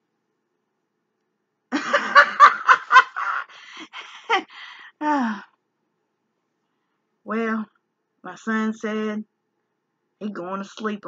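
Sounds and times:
woman laughing: 1.7s - 4.6s.

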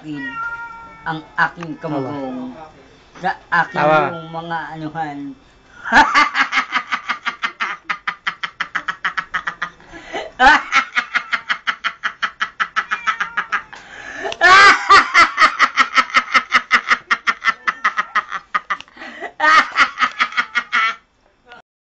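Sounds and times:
man laughing in a cackle: 5.9s - 21.0s.

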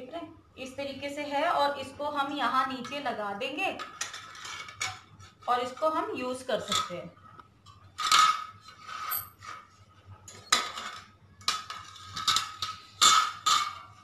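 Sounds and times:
metal wire parts clinking: 7.7s - 9.7s.

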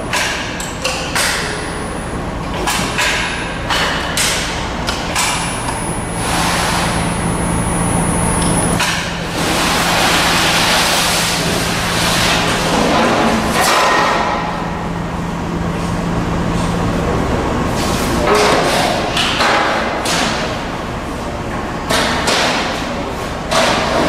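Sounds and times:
folding machine humming: 0.0s - 19.3s.

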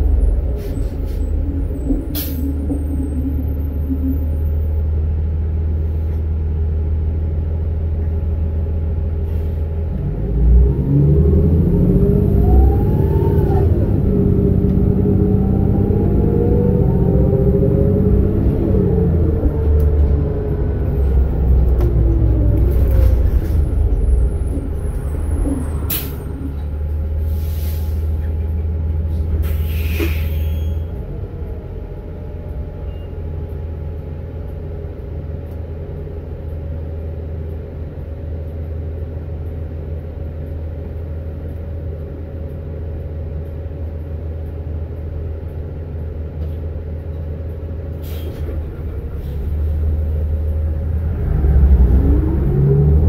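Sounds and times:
bus engine rumble and whine: 0.0s - 53.0s
air brake hisses: 9.2s - 9.7s, 27.2s - 28.3s, 29.4s - 30.8s, 48.0s - 48.6s.

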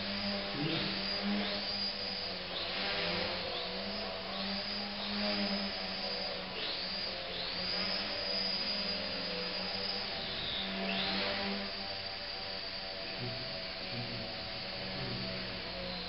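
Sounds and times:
model plane motor whine: 0.0s - 16.0s.

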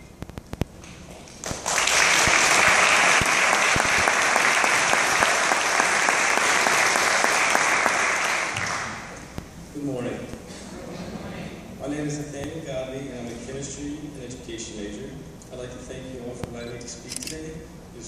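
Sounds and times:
audience applauding: 0.8s - 9.2s.

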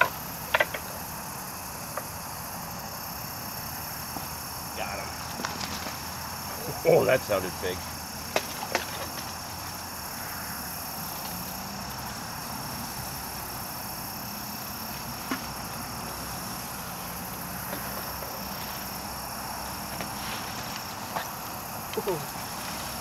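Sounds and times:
faint knocks and ticks: 0.0s - 1.0s
crickets chirping: 0.0s - 23.0s.

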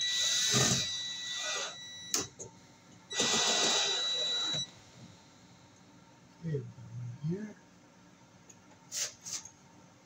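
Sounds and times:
cordless drill whining: 0.0s - 1.8s, 3.1s - 4.7s.

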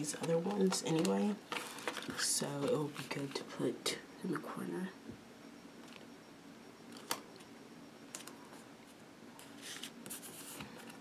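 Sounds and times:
sticker backing ticks: 0.1s - 1.3s
paper sheet rustling: 9.4s - 10.9s.

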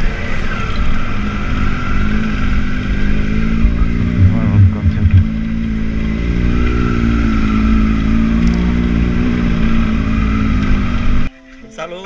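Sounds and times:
motorcycle engine running: 1.2s - 11.3s
wind noise: 1.8s - 7.4s.

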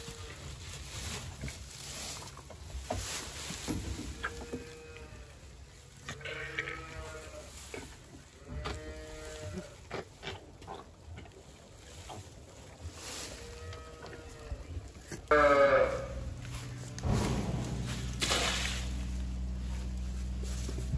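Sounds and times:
calf bleating: 0.0s - 0.4s, 4.2s - 5.4s, 6.0s - 7.8s, 8.4s - 9.9s, 13.4s - 16.8s.

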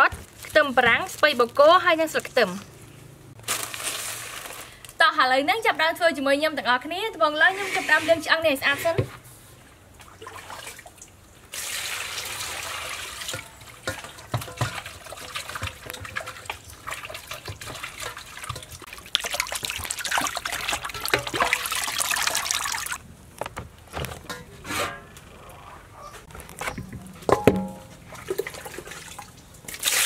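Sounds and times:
water sloshing and splashing: 9.5s - 23.0s, 26.2s - 30.0s
bones knocking against metal bowl: 13.4s - 16.5s, 20.8s - 21.7s, 26.6s - 28.1s.

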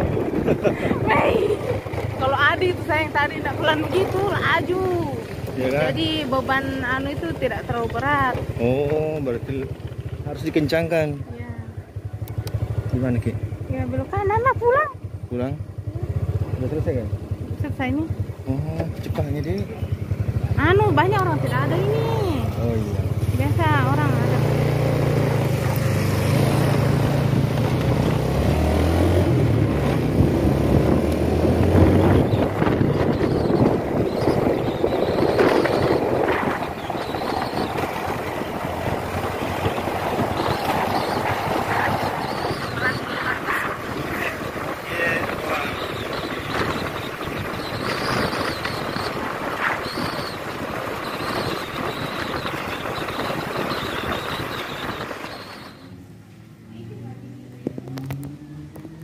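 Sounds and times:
wind on microphone: 0.0s - 8.6s, 20.0s - 55.9s
motorcycle engine running: 0.0s - 59.0s
tyre noise: 20.4s - 56.0s.

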